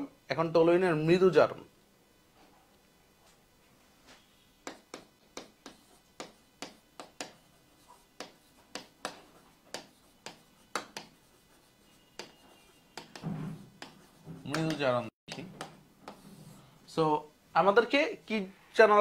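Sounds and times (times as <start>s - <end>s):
marker tapping on whiteboard: 4.6s - 16.2s.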